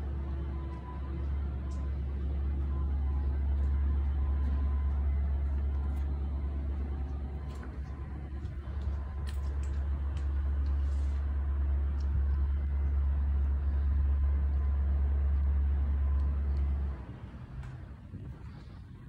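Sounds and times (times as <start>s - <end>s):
wind buffeting microphone: 16.3s - 19.0s.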